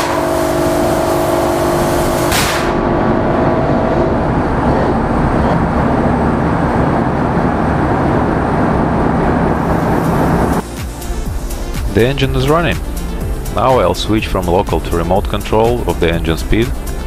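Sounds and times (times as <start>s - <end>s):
compressed air hisses: 0.0s - 2.7s
diesel engine rumbling: 0.0s - 17.0s.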